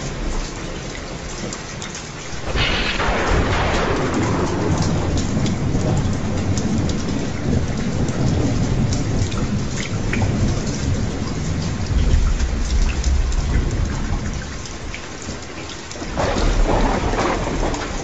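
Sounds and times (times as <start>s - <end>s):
heavy rain: 0.0s - 18.0s
raindrop ticks: 0.0s - 18.0s
rolling thunder: 2.4s - 15.0s, 16.0s - 18.0s.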